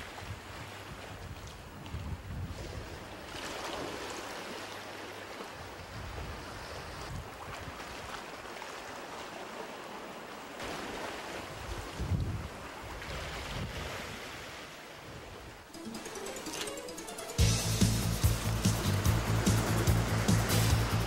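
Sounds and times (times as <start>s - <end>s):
wind on microphone: 0.0s - 3.1s, 5.6s - 8.2s, 11.5s - 15.6s.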